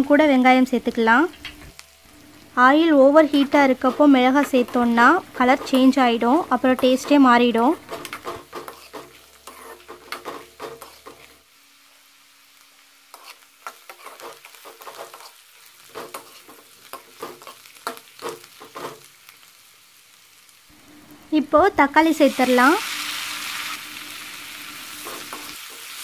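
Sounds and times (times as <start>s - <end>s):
faint oil sizzle: 0.0s - 26.0s
spatula scraping a pan: 7.9s - 11.4s, 13.1s - 19.1s, 24.8s - 26.0s.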